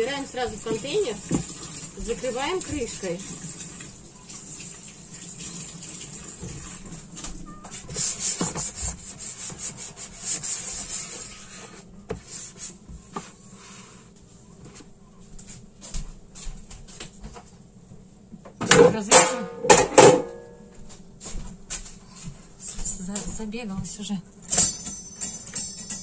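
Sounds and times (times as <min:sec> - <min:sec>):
plastic containers rubbing and scraping: 0:00.0 - 0:03.2, 0:06.4 - 0:11.9.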